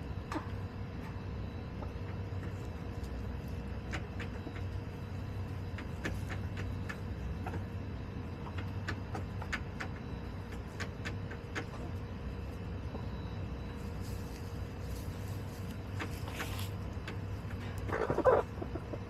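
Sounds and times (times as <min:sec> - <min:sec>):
steady low hum: 0:00.0 - 0:19.0
chickens pecking in straw: 0:00.2 - 0:19.0.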